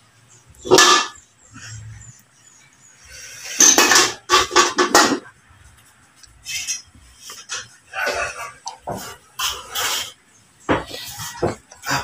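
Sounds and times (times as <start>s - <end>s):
woks and cutting board clanking: 3.5s - 5.3s.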